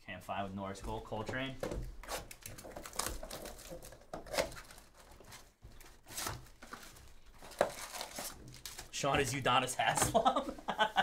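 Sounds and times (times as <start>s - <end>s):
cardboard ripping: 2.0s - 9.0s
plastic shrink-wrap crinkling: 2.3s - 9.1s.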